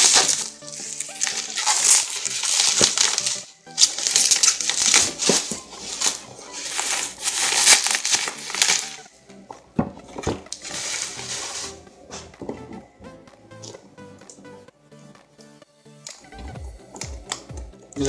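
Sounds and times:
bubble wrap crinkling: 0:00.0 - 0:09.1, 0:10.1 - 0:11.8.

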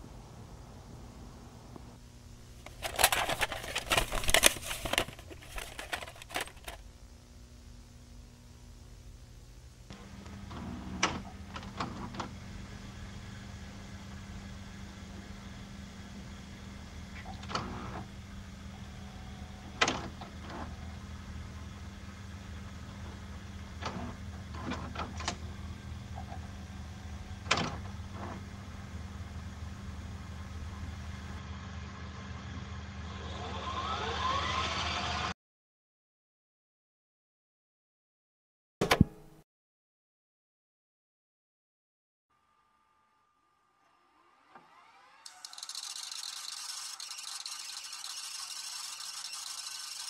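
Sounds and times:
low electrical hum: 0:00.0 - 0:33.2.

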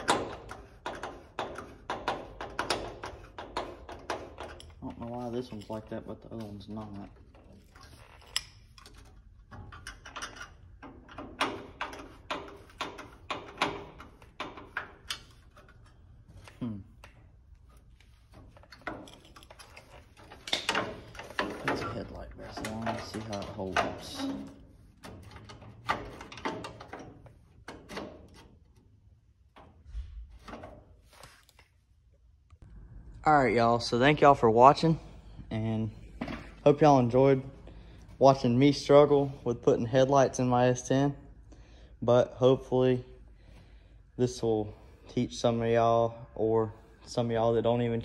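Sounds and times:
metal and plastic rattles: 0:00.0 - 0:16.6, 0:18.2 - 0:28.8.

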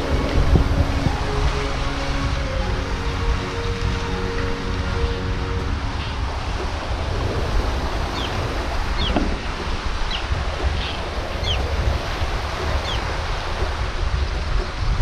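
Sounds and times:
surf on rocky shore: 0:00.0 - 0:15.0
wind buffeting microphone: 0:00.0 - 0:15.0
high falling chirps: 0:08.1 - 0:11.7, 0:12.6 - 0:13.1.

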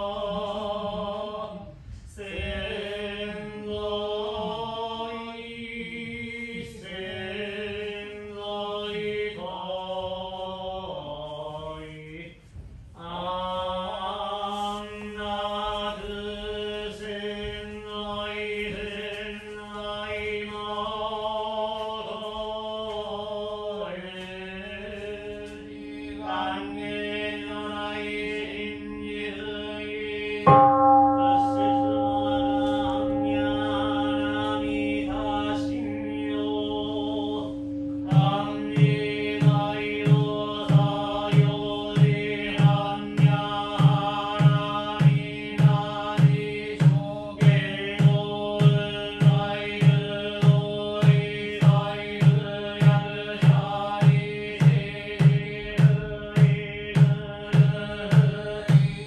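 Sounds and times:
priests chanting: 0:00.0 - 0:12.4, 0:13.0 - 0:59.0
loud strike: 0:31.2 - 0:59.0
steady knocking beat: 0:34.0 - 0:59.0.

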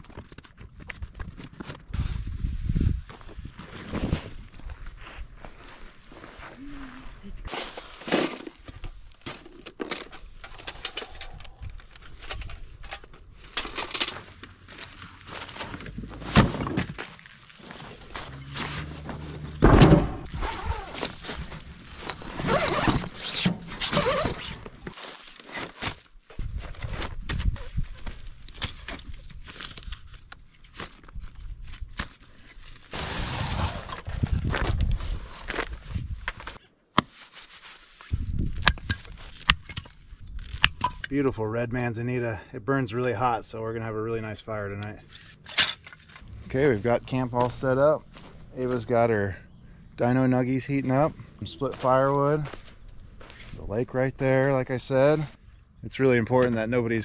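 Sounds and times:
camping gear clicks and rustles: 0:00.0 - 0:02.4, 0:07.5 - 0:19.6, 0:20.2 - 0:33.0, 0:33.8 - 0:41.2, 0:44.7 - 0:55.4
footsteps crunching: 0:14.2 - 0:22.9, 0:46.0 - 0:55.4.

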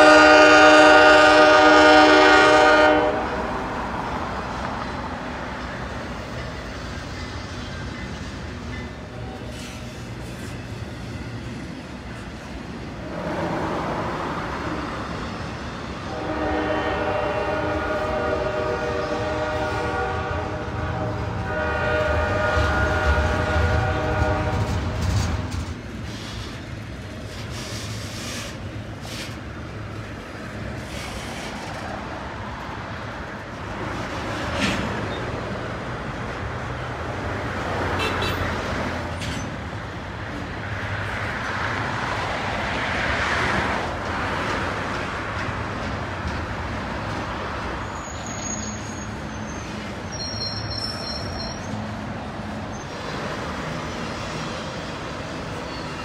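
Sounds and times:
freight train rumbling on rails: 0:00.0 - 0:56.0
train cars clanking: 0:21.3 - 0:56.0
high squeals: 0:47.8 - 0:52.0.

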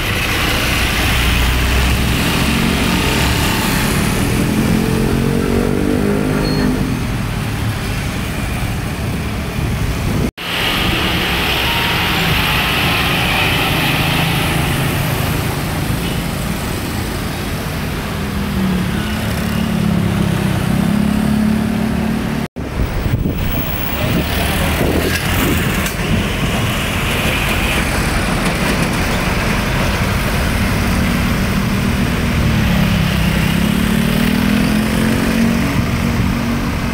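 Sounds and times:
motor scooters passing: 0:00.0 - 0:08.7, 0:18.3 - 0:22.5, 0:24.0 - 0:36.9.

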